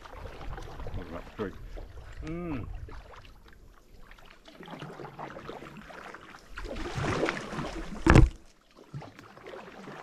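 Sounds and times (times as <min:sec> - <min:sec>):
water swishing around kayak hull: 0:00.0 - 0:10.0
sharp thump: 0:08.0 - 0:08.4.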